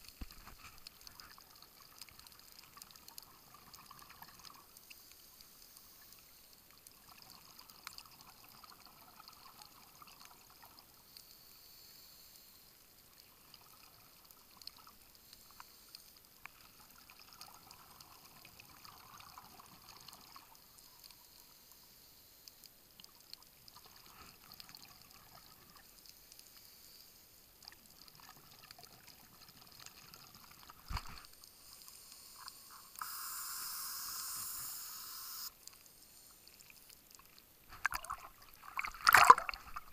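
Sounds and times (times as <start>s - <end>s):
underwater exhaled bubbles: 36.6s - 39.9s.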